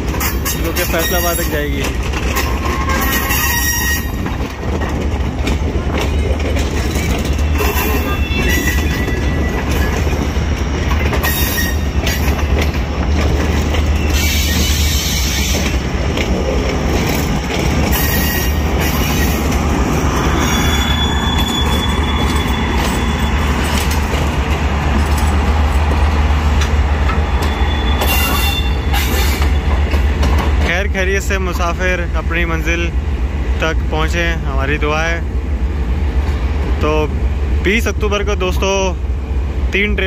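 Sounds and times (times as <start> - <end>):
wheels squealing: 0.0 - 26.2, 27.0 - 30.2
train wheels clattering over joints: 0.0 - 35.2.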